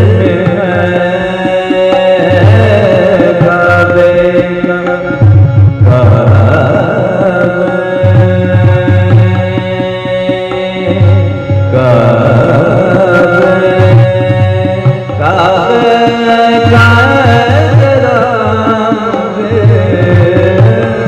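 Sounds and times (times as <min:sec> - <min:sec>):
man singing: 0:00.0 - 0:21.0
tabla rhythm: 0:00.0 - 0:21.0.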